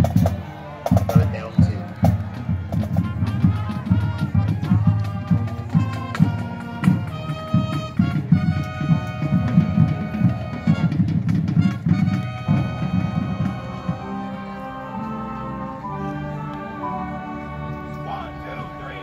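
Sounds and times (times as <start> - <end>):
drumline beat: 0.0 - 14.4
brass instruments holding tones: 0.0 - 19.0.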